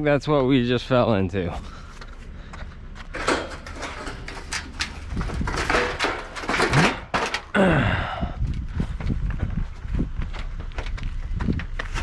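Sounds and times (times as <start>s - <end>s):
steady low rumble: 0.0s - 11.9s
scrap metal knocks and clanks: 3.0s - 7.5s.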